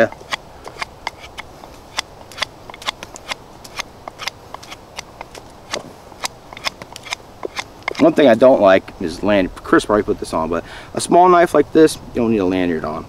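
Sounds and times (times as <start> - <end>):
knife shaving a stick: 0.0 - 8.2.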